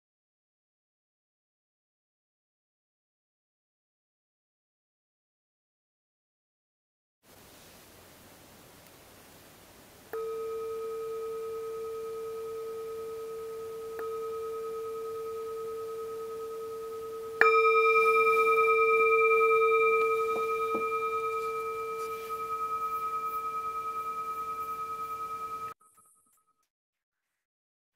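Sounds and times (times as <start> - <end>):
metal singing bowl ringing: 10.1 - 26.2.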